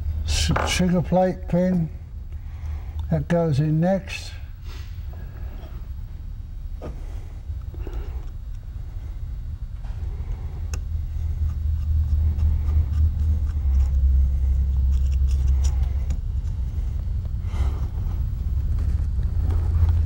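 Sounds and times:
low rumble: 4.4s - 20.0s
metal clicks and scrapes: 11.4s - 16.6s.

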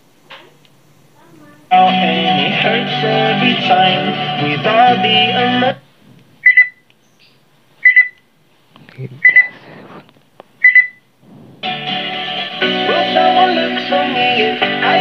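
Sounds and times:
music from speaker: 1.7s - 5.8s, 11.6s - 15.0s
speaker short high beeps: 6.4s - 6.8s, 7.8s - 8.2s, 9.2s - 9.6s, 10.6s - 11.0s.

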